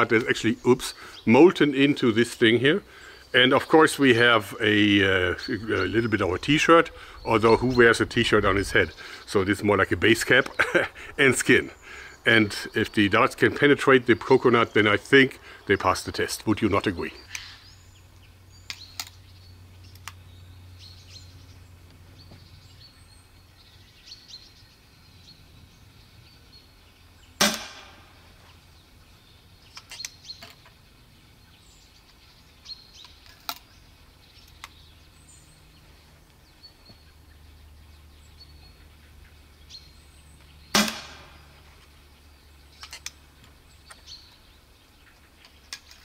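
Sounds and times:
air rifle shot cracking: 27.4s - 28.3s, 40.7s - 41.6s.

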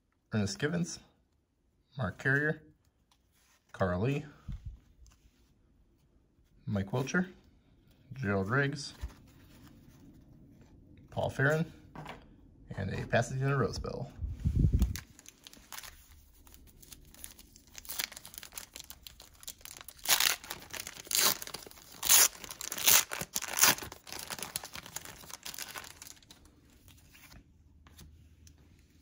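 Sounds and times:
wrapper crinkling and tearing: 14.8s - 26.4s.

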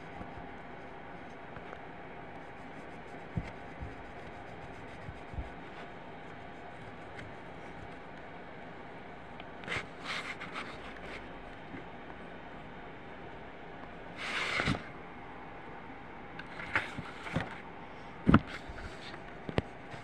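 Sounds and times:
room hum: 0.0s - 20.0s
scratchy rubbing on paper: 2.3s - 8.0s.

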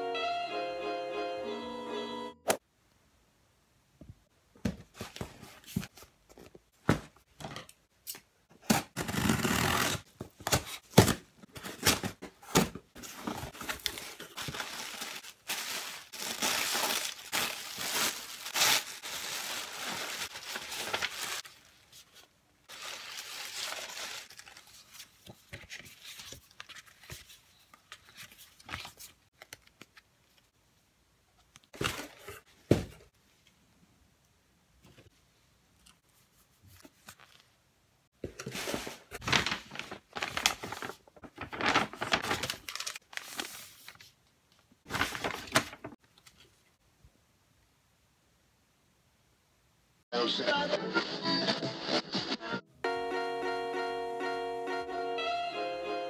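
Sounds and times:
paper crinkling and tearing: 8.9s - 27.4s, 38.5s - 44.1s, 44.9s - 46.0s.

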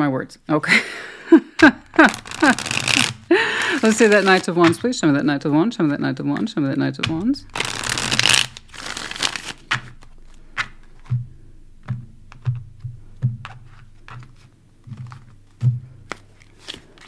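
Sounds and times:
cards being shuffled: 1.8s - 5.0s, 6.4s - 11.2s, 11.8s - 17.0s
cards tapping on cloth table: 10.6s - 16.8s.

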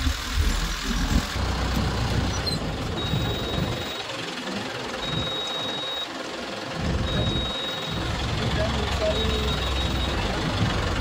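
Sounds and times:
vehicle engine and road noise: 0.0s - 11.0s
vehicle rattling: 0.0s - 11.0s
high steady beep: 3.0s - 4.1s, 5.0s - 6.1s, 7.0s - 10.3s.

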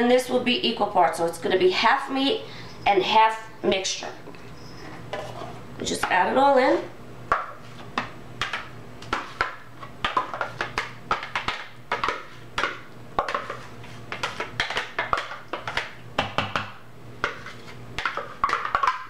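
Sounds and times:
spatula scraping plastic bowl: 4.6s - 6.2s, 13.2s - 14.9s, 17.2s - 18.9s.

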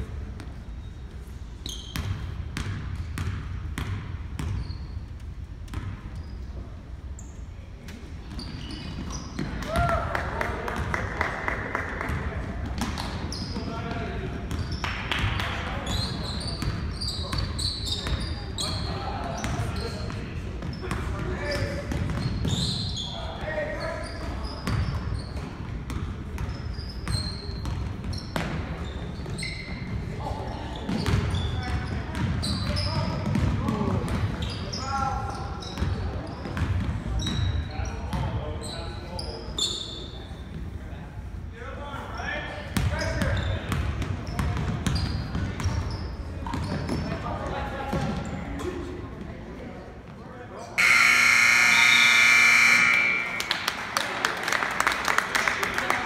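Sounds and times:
sneaker squeaks: 0.4s - 9.8s, 12.1s - 40.6s, 42.1s - 48.8s, 50.6s - 53.7s
basketball bouncing on wood floor: 2.0s - 4.6s.

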